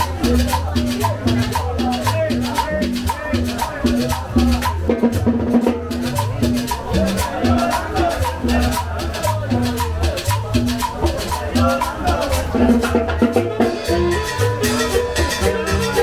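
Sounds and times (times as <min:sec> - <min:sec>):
latin dance band music: 0:00.0 - 0:16.0.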